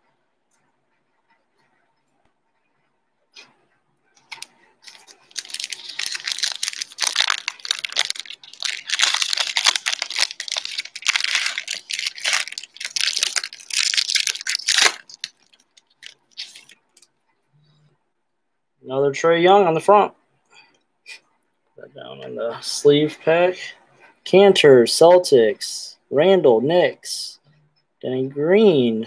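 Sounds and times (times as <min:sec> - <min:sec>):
foil wrapper tearing and crinkling: 0:04.3 - 0:16.8.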